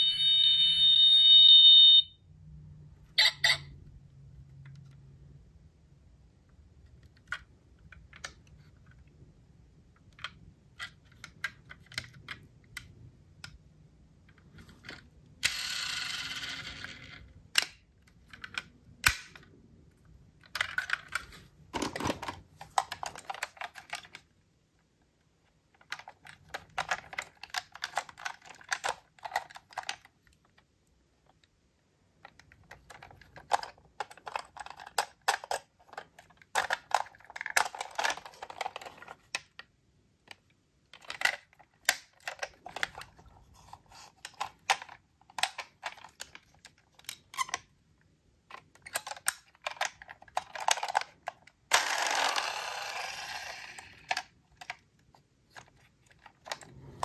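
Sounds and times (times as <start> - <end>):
metal model cars clicking: 48.5 - 54.8.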